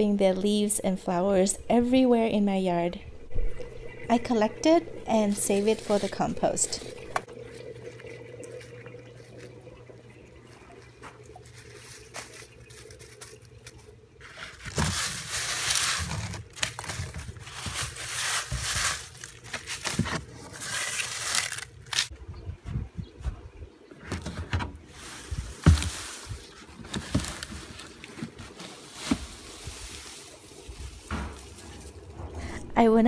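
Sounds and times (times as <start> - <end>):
faint steady hum: 0.0 - 33.0
dry leaves rustling and crackling: 5.3 - 9.6, 10.5 - 22.2, 24.9 - 32.2.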